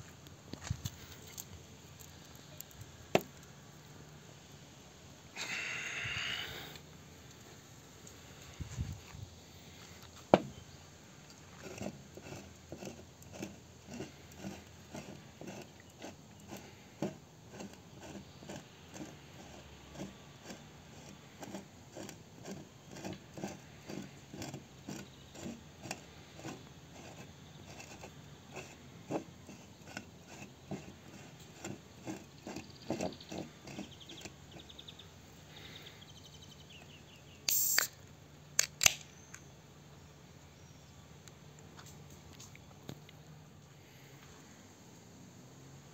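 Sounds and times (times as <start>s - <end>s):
can opening with hiss: 37.4s - 39.4s
fingers tapping soda can: 37.5s - 37.9s
can tab clicks: 37.5s - 38.0s.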